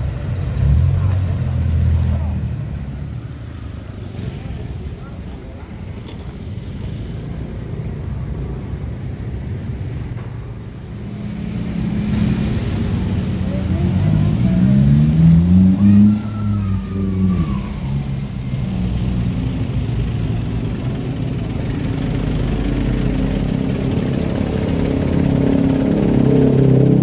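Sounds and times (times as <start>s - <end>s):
engines running: 20.8s - 27.0s.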